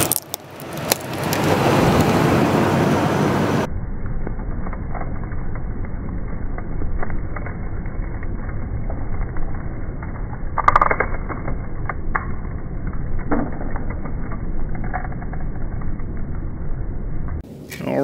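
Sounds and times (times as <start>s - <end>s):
tyre crushing plastic crackle: 0.0s - 1.8s
pickup engine rumbling low: 0.0s - 17.7s.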